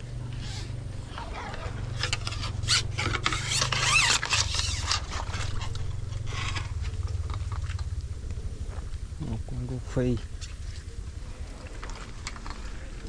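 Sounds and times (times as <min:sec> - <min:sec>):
rasping scraping sounds: 0:00.0 - 0:07.7
steady low hum: 0:00.0 - 0:13.0.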